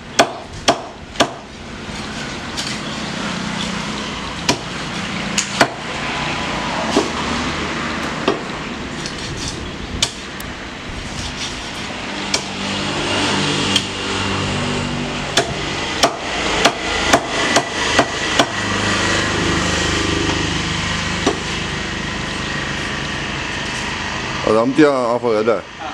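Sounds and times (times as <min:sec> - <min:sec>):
knife chopping on wooden block: 0:08.2 - 0:08.5.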